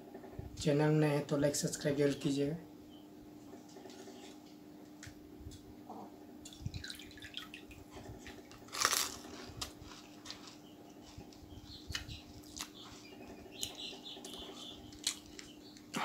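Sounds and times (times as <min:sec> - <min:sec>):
faint steady hum: 0:00.0 - 0:16.0
wet chewing: 0:08.2 - 0:16.0
crisp shell crunching in mouth: 0:08.6 - 0:10.6, 0:14.9 - 0:15.5.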